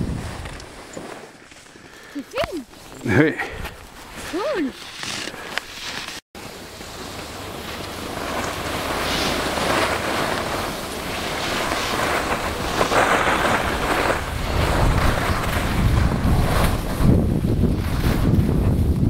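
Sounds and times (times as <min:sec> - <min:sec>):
wind on microphone: 0:00.0 - 0:00.7, 0:08.0 - 0:19.0
skis scraping over snow: 0:00.0 - 0:19.0.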